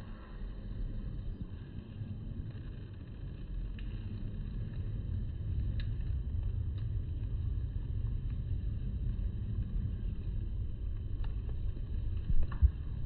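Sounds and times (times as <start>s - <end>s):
low outdoor rumble: 0.0s - 13.0s
faint ticks: 2.4s - 7.4s, 9.6s - 12.9s.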